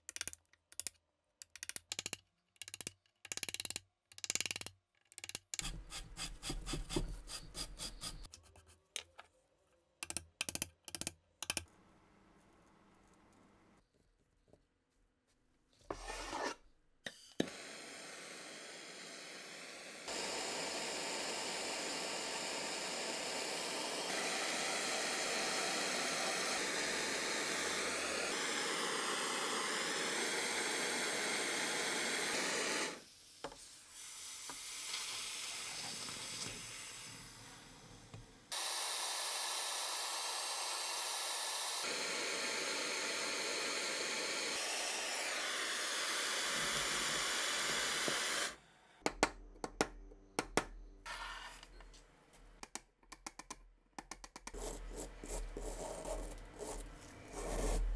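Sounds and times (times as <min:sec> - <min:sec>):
blowtorch hissing: 0:17.4 - 0:33.0, 0:33.9 - 0:37.7, 0:38.5 - 0:48.6.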